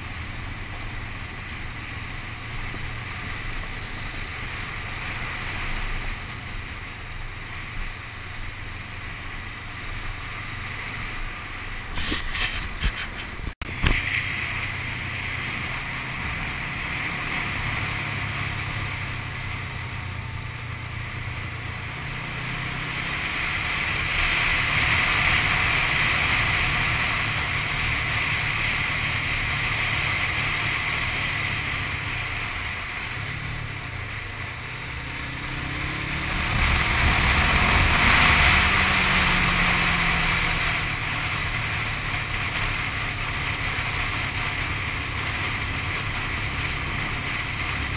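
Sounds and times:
motorcycle engine running: 0.0 - 47.9
wind rushing over microphone: 10.5 - 20.3, 22.2 - 47.9.

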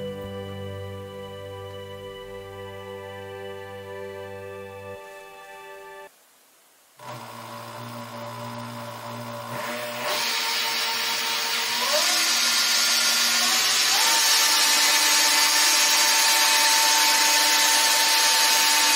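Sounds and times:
lathe motor whirring and whining: 7.0 - 18.9.

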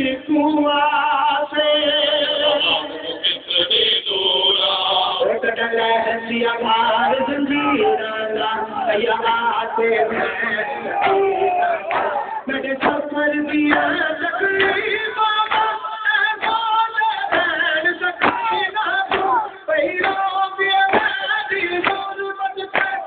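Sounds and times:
mourners chanting together: 2.1 - 16.5
chest-beating slaps: 11.8 - 13.0, 18.2 - 19.4.

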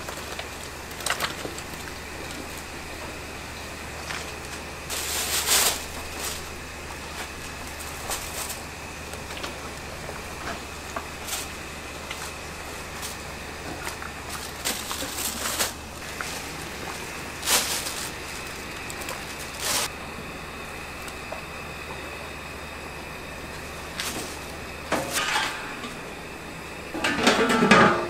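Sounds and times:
plastic bag rustling: 4.0 - 10.0, 10.6 - 19.9, 23.9 - 25.4.

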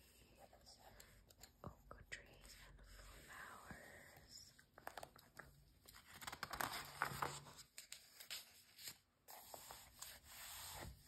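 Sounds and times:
paper rustling: 4.8 - 11.0.

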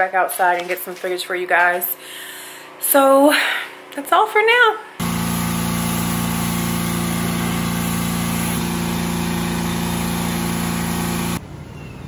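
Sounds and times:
pressure washer engine running: 5.0 - 11.4.

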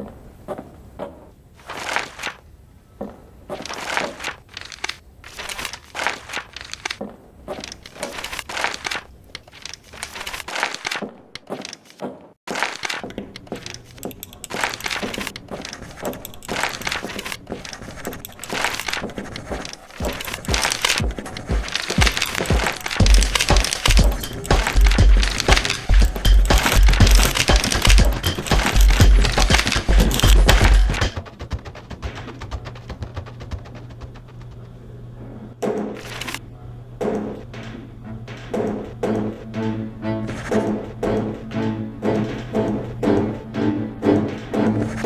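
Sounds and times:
paper rustling: 1.6 - 2.4, 3.5 - 34.6, 36.0 - 36.4.

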